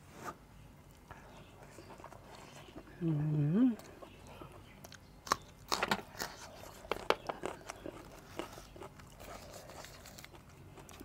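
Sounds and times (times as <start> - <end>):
person crunching raw vegetables: 3.8 - 11.0.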